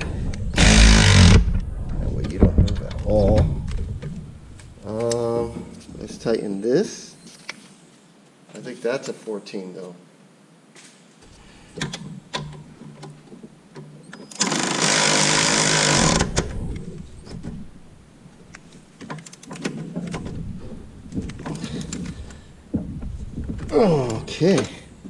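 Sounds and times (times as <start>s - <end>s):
power ratchet running: 0.6s - 1.4s, 14.4s - 16.4s.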